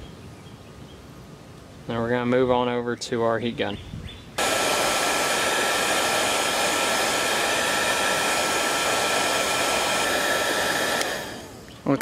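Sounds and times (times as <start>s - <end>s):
rushing airflow: 4.4s - 11.8s
heat gun fan whining: 4.4s - 12.0s.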